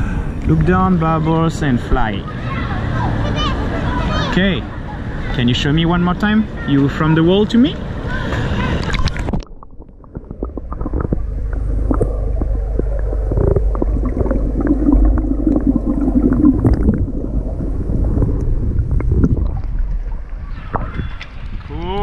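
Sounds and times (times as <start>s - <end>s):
low rumble of moving water: 0.0s - 6.7s, 7.8s - 22.0s
bubbling: 8.7s - 22.0s
underwater clicks: 8.8s - 17.4s.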